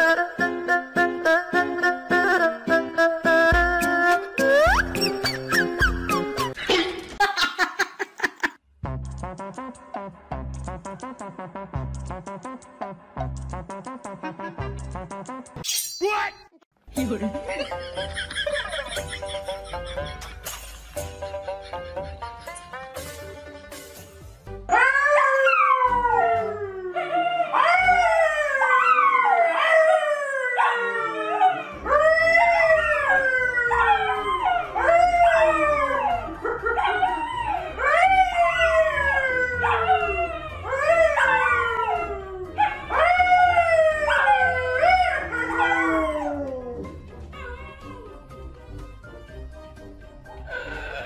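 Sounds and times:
dogs howling: 24.7s - 48.3s.

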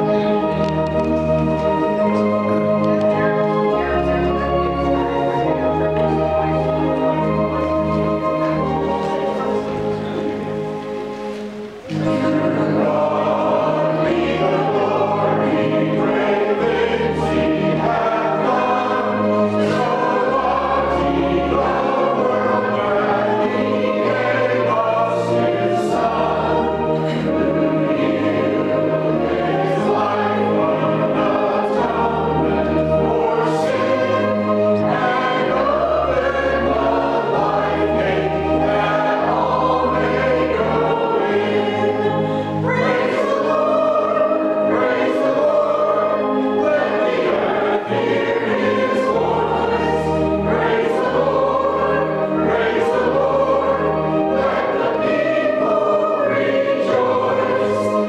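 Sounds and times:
choir singing a hymn: 0.0s - 58.0s.

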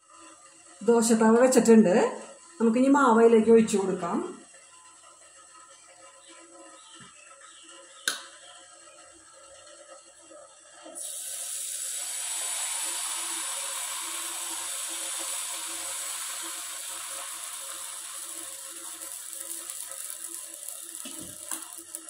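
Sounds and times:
batter sizzling on a pan: 8.7s - 22.0s.

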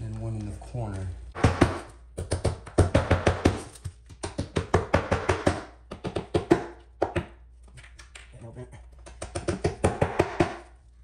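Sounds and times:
hammer driving nails: 1.4s - 6.8s, 9.2s - 10.7s.

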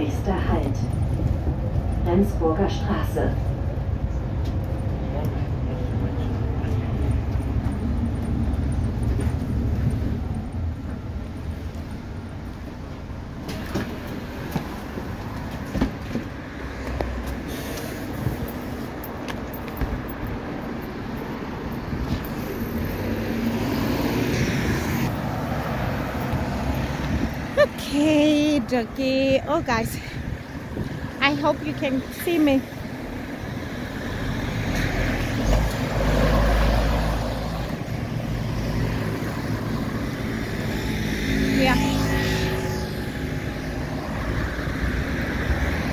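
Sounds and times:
bus engine rumbling: 0.0s - 45.9s
vehicle passing close by: 21.9s - 27.8s, 33.6s - 45.9s.

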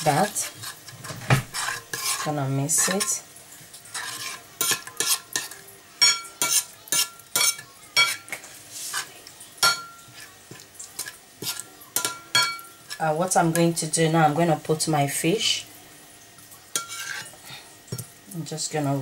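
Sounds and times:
metal spoon scraping ceramic plate: 0.5s - 3.2s, 3.9s - 5.6s, 6.4s - 8.2s, 16.8s - 17.3s.

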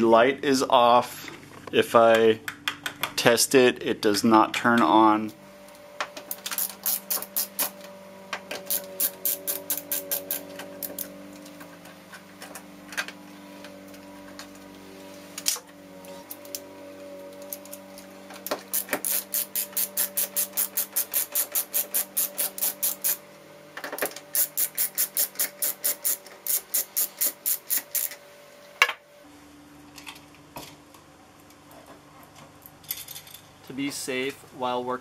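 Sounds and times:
screwdriver metallic clicking: 8.6s - 11.1s.

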